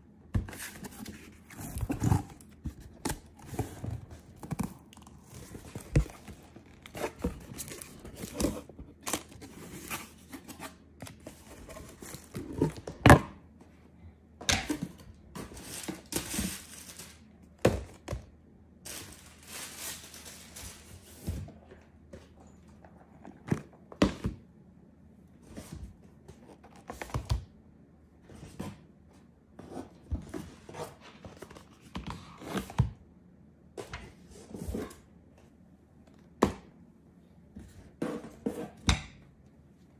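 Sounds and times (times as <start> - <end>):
paper and cardboard rustling: 0.4 - 12.8, 18.9 - 21.6.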